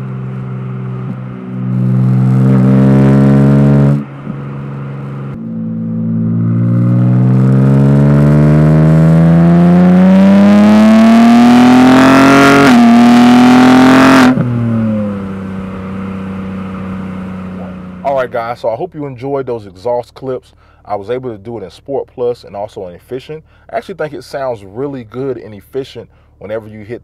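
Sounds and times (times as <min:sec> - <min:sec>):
car exhaust under hard acceleration: 0:00.0 - 0:19.4.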